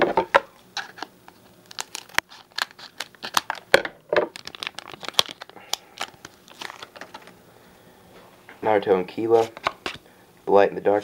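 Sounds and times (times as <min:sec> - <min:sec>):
wrapper crinkling: 0:00.8 - 0:07.4
scissors snipping foil: 0:01.6 - 0:03.6.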